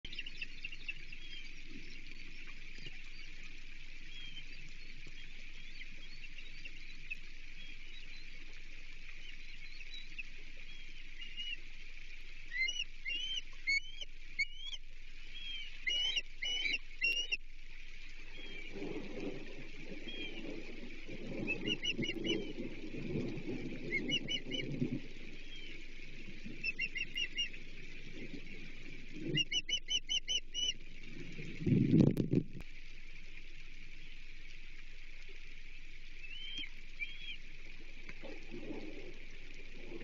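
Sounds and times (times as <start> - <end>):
rain hiss: 0.1 - 40.0
ospreys whistled chirps: 12.5 - 17.4, 21.2 - 22.7, 23.8 - 25.8, 26.6 - 27.6, 29.2 - 30.8, 36.2 - 37.4.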